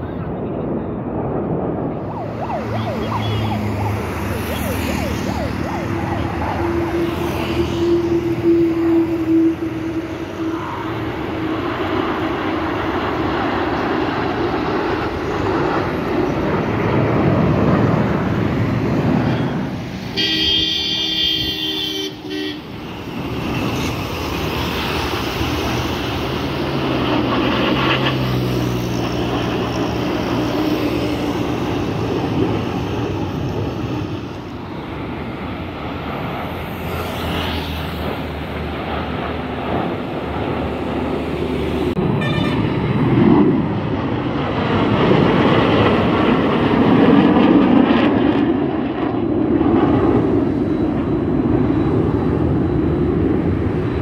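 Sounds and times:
jets flying past overhead: 0:00.0 - 0:54.0
horn-like tone: 0:02.7 - 0:03.9, 0:06.6 - 0:10.4, 0:20.2 - 0:22.8, 0:42.2 - 0:42.7.

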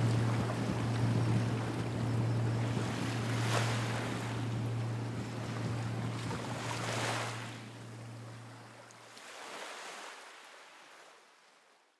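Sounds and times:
low hum: 0:00.0 - 0:08.8
waves washing: 0:00.0 - 0:10.3.

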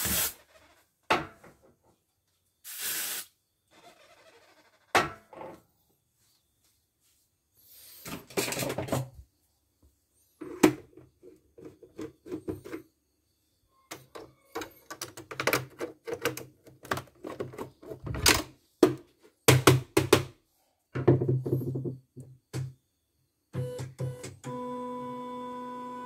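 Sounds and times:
plastic machine parts clacking: 0:13.9 - 0:18.5.

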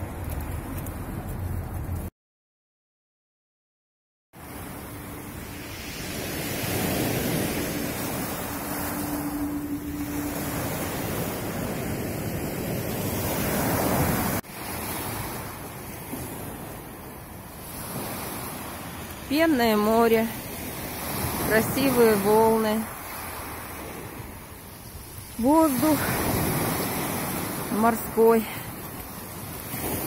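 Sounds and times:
surf breaking on shore: 0:04.4 - 0:24.5.

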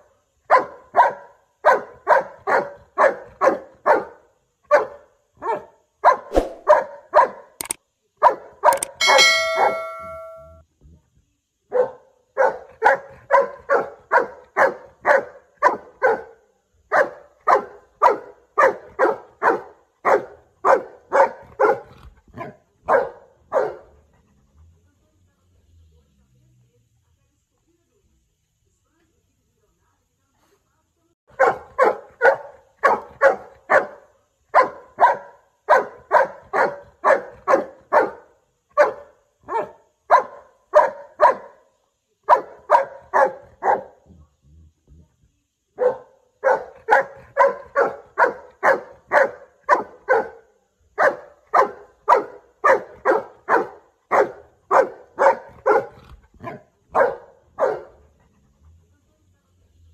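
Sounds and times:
dog barking rapidly: 0:00.5 - 0:07.5, 0:08.2 - 0:09.3, 0:11.7 - 0:16.3, 0:16.9 - 0:23.9, 0:31.3 - 0:41.6, 0:42.3 - 0:44.0, 0:45.8 - 0:50.4, 0:51.0 - 0:58.0.

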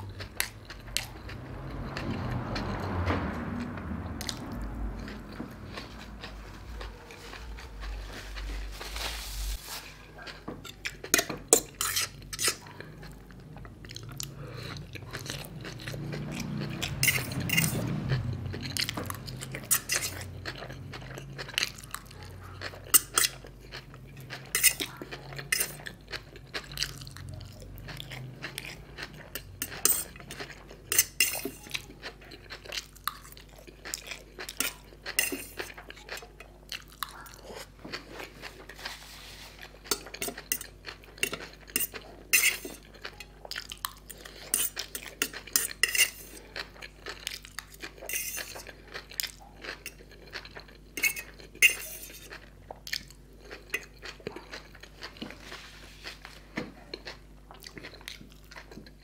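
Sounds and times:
chewing: 0:00.0 - 0:59.0
fork clinking on metal plate: 0:29.6 - 0:30.1, 0:34.6 - 0:35.8, 0:39.9 - 0:42.8, 0:44.5 - 0:46.3, 0:48.1 - 0:48.7, 0:51.0 - 0:52.3.

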